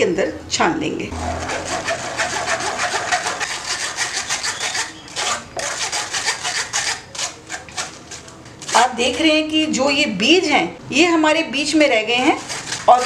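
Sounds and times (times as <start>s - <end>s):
spoon scraping metal mesh strainer: 1.2s - 9.8s, 11.8s - 13.0s.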